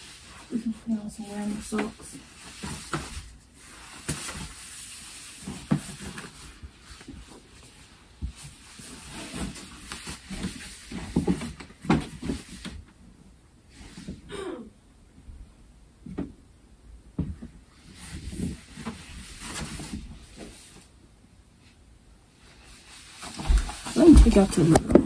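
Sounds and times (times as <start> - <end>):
clothes and bags rustling: 22.4 - 25.0
knocks and thumps: 23.3 - 25.0.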